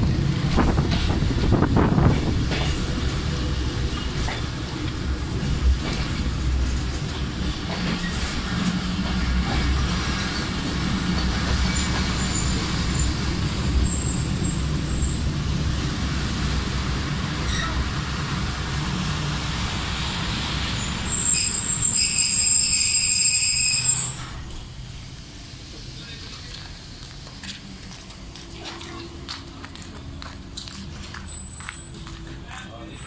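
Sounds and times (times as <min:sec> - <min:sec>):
road traffic rumble: 0:00.0 - 0:07.7, 0:24.3 - 0:33.0.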